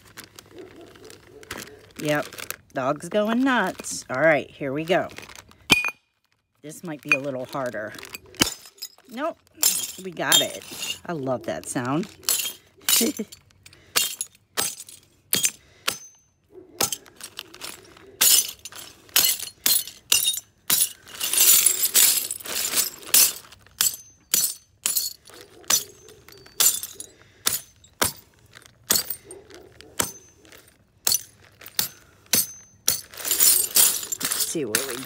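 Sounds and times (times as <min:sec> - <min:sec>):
hammer cracking glass: 0:12.3 - 0:16.2, 0:18.2 - 0:28.3, 0:28.9 - 0:29.2, 0:31.0 - 0:35.0.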